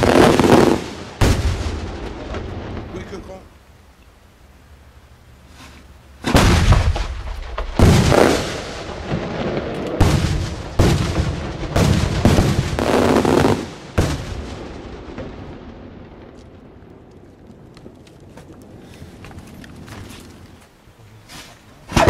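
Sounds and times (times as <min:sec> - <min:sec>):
firework bangs with echo: 0:00.0 - 0:03.2, 0:06.2 - 0:16.4.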